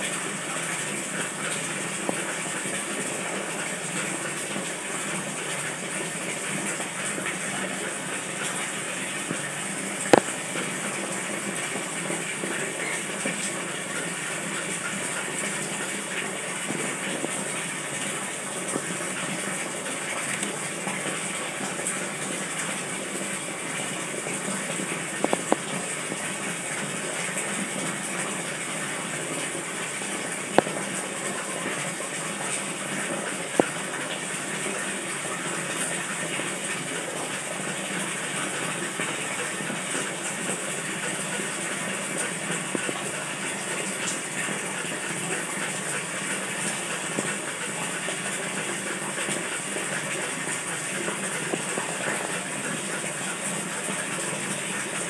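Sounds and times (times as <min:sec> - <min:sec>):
aquarium waterfall splashing: 0:00.0 - 0:55.0.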